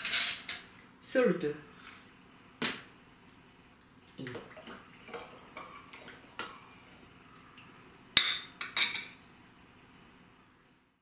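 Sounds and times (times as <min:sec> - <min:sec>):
small water splashes: 0:04.1 - 0:06.6.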